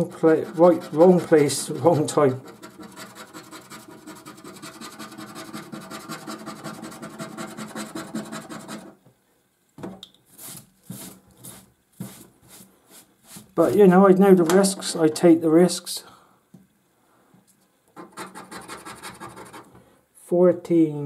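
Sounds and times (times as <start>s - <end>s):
scratchcard being scratched: 0.0s - 8.9s, 18.0s - 19.7s.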